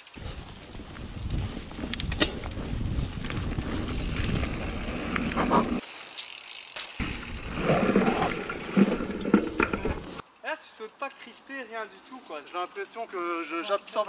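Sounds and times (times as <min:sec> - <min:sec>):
wind noise: 0:00.0 - 0:05.8
bike clicks and rattles: 0:00.0 - 0:10.2
bike tyres rolling on dirt: 0:00.0 - 0:10.2.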